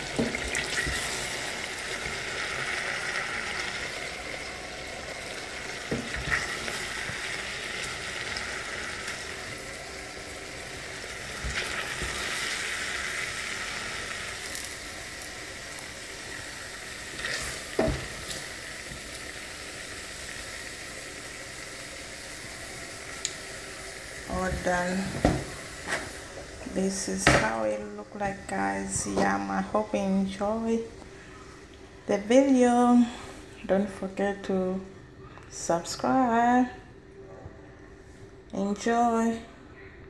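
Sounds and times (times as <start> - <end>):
stew sizzling in a pot: 0.0 - 31.3.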